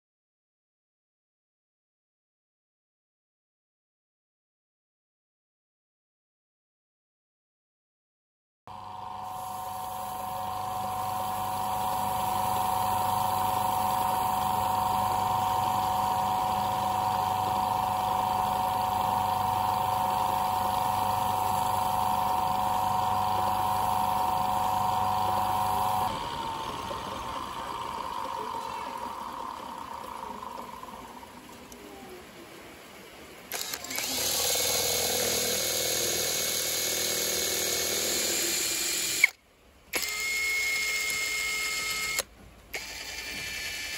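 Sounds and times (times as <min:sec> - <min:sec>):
electric drill running: 0:08.7 - 0:31.8, 0:33.5 - 0:43.9
wood lathe motor humming: 0:08.7 - 0:31.8, 0:33.5 - 0:39.4, 0:40.0 - 0:43.9.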